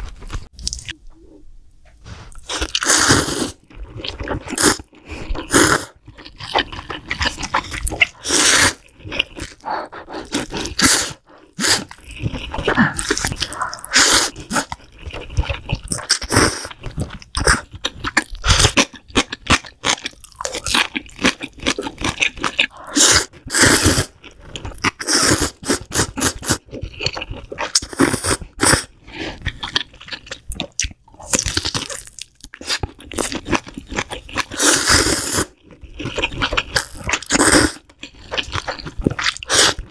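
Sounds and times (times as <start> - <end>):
noodles slurped: 2.3 - 18.9, 20.5 - 29.8, 34.2 - 39.9
wet chewing: 3.5 - 39.9.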